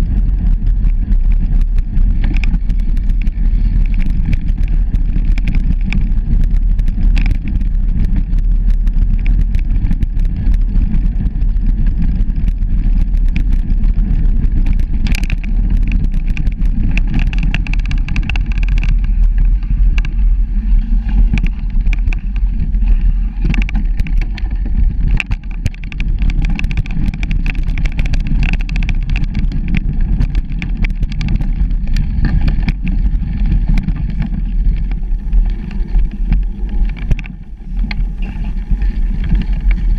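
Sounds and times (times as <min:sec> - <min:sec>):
bicycle tyre noise: 0:00.0 - 0:39.9
bike clicks and rattles: 0:00.0 - 0:39.9
wind rumble on microphone: 0:00.0 - 0:39.9.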